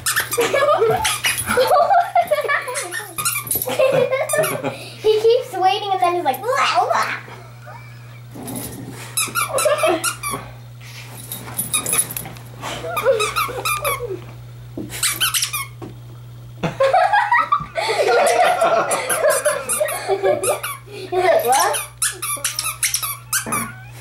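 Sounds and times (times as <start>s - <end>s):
dog toy squeaking: 0.0s - 0.4s, 1.0s - 1.5s, 2.7s - 3.7s, 9.2s - 10.4s, 13.0s - 14.0s, 15.0s - 15.8s, 20.4s - 20.8s, 21.4s - 24.0s.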